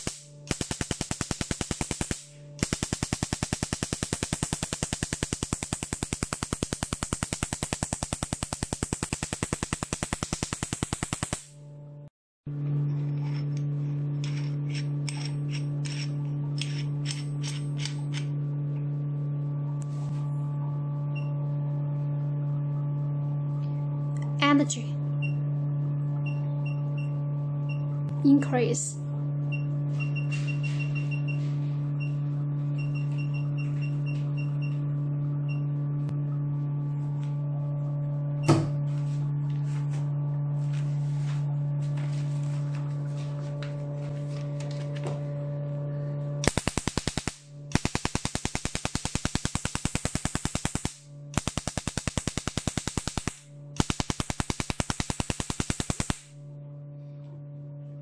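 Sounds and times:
laser pulses snapping on paper: 0:00.0 - 0:11.5, 0:46.4 - 0:56.3
machine humming: 0:00.0 - 0:58.0.

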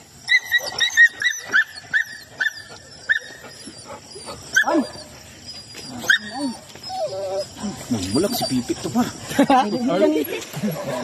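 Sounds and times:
dog whining: 0:00.3 - 0:08.7.

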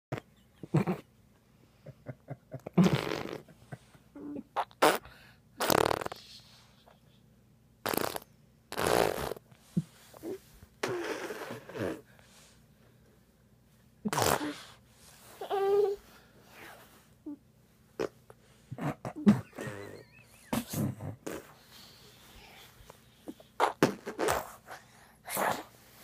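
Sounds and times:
baby blowing raspberries: 0:04.6 - 0:06.2, 0:07.8 - 0:09.4, 0:10.2 - 0:12.0, 0:14.1 - 0:14.8, 0:23.3 - 0:25.8.

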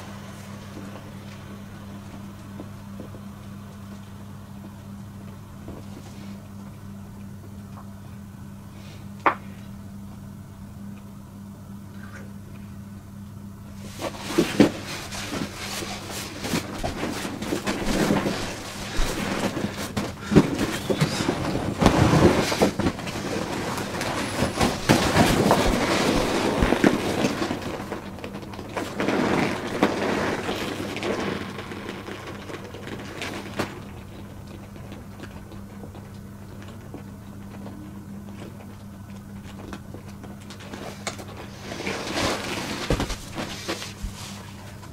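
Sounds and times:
steady low hum: 0:00.0 - 0:44.9
vinyl crinkling and rustling: 0:13.8 - 0:44.9.

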